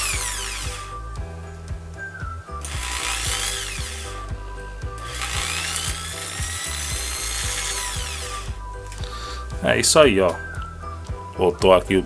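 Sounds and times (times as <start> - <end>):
drill whining: 0.0 - 1.3, 2.2 - 9.6
background music with steady beat: 0.0 - 12.0.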